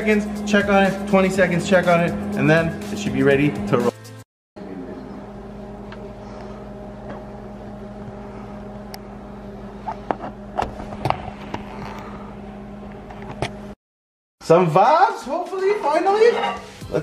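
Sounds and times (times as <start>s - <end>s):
electrical appliance hum: 0.0s - 3.9s, 4.6s - 13.8s.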